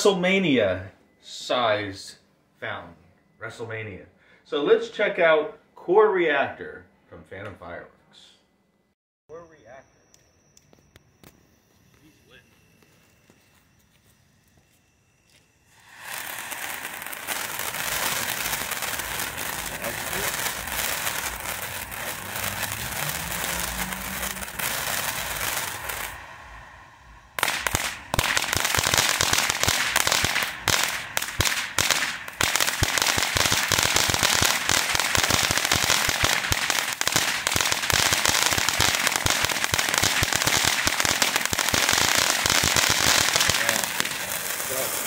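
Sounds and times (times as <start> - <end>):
firework crackling: 15.4 - 45.0
firework fountain hissing: 15.6 - 45.0.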